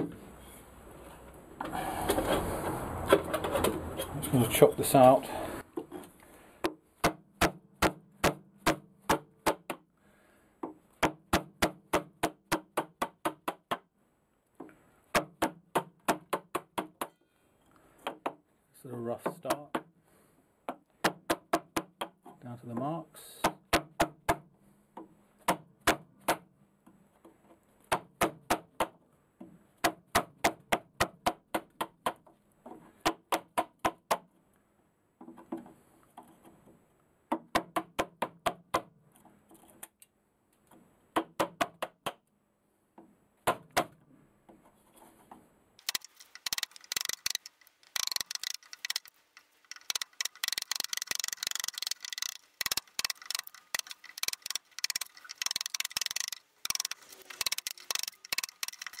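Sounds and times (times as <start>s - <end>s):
chisel scraping and clicking: 45.8s - 59.0s.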